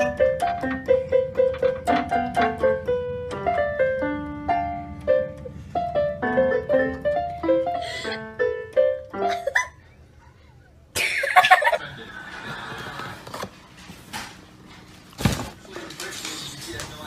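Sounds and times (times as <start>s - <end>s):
electronic keyboard melody: 0.0s - 9.6s.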